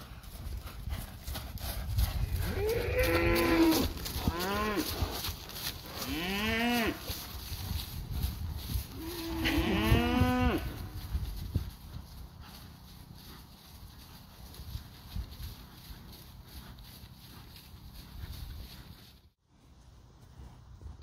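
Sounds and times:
bull mooing: 2.4s - 4.9s, 6.0s - 7.0s, 8.9s - 10.9s.

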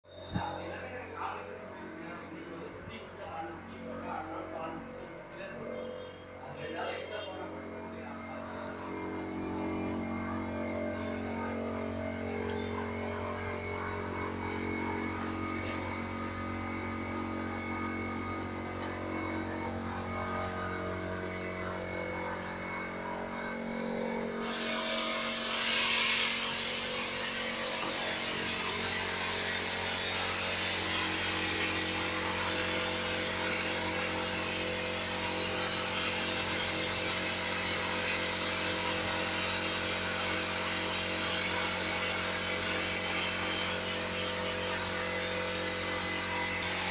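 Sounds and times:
steady machine hum: 0.0s - 46.9s
sandblasting air hiss: 24.4s - 46.9s.

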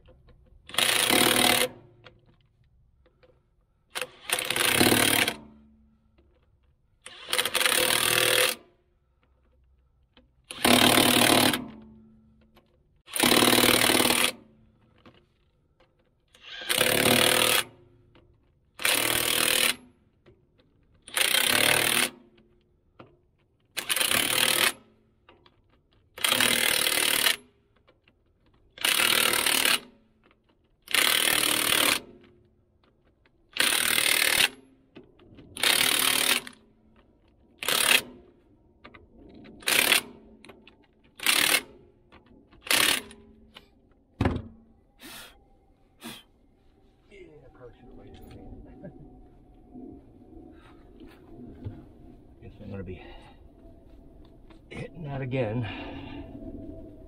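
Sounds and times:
impact wrench hammering lug nuts: 0.6s - 1.9s, 3.9s - 5.6s, 7.0s - 8.6s, 10.4s - 11.8s, 13.1s - 14.4s.

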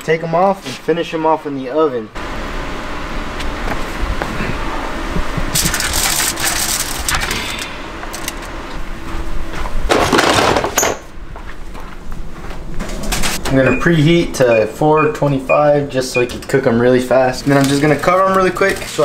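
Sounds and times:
aluminium foil crinkling: 5.5s - 8.4s.

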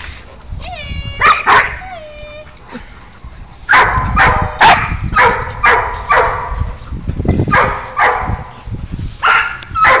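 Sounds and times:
dogs barking: 3.7s - 6.7s, 7.5s - 8.5s, 9.2s - 10.0s.

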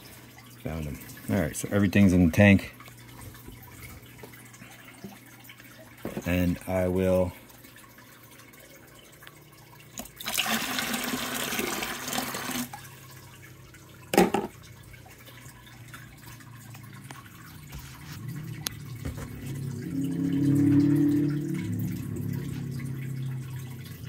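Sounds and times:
water splashing in plastic bucket: 16.2s - 24.0s.

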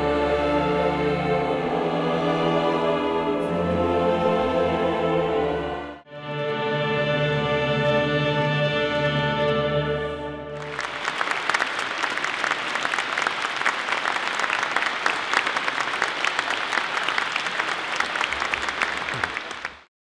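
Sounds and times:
choir and orchestra chord: 0.0s - 10.8s
audience applauding: 10.6s - 19.9s.

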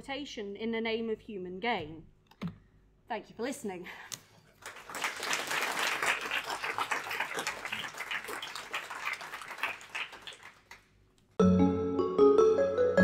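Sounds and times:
audience applauding: 4.6s - 10.9s.

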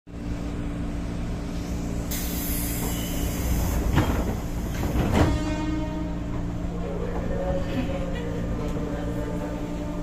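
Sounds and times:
pneumatic doors hissing shut: 2.1s - 5.3s.

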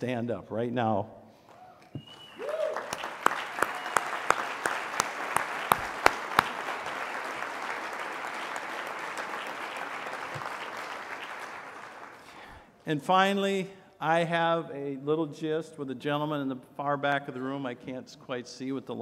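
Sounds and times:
loud close hand claps: 1.5s - 12.4s
audience applauding: 2.0s - 12.6s.

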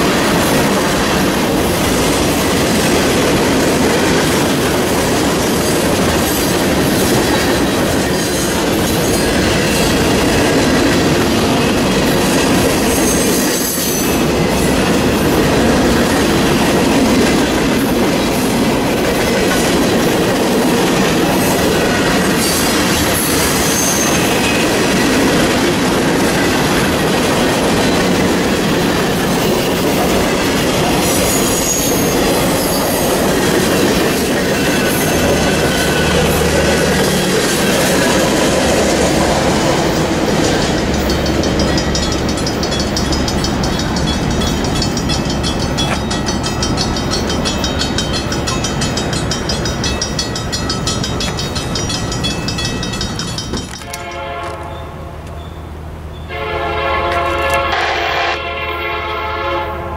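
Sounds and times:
freight train wheels rumbling: 0.0s - 59.9s
high-pitched wheel squeals: 23.3s - 24.7s.

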